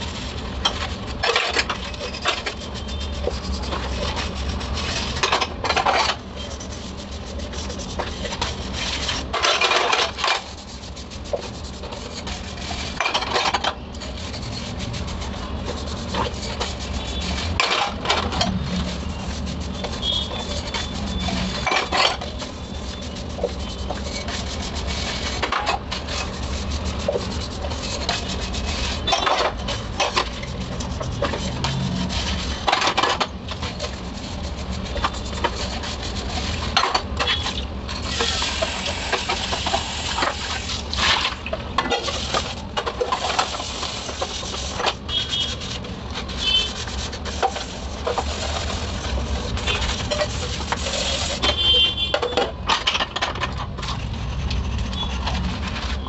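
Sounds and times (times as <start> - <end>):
scrub pad scrubbing: 0.0 - 5.2, 6.1 - 13.4, 14.0 - 36.8.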